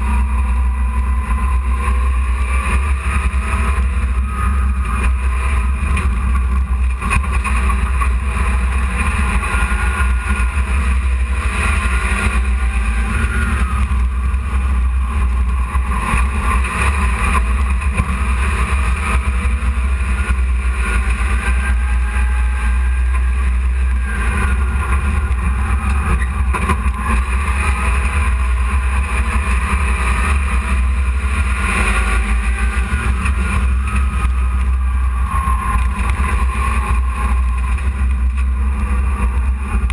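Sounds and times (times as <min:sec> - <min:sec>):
race truck engine running: 0:00.0 - 0:39.9.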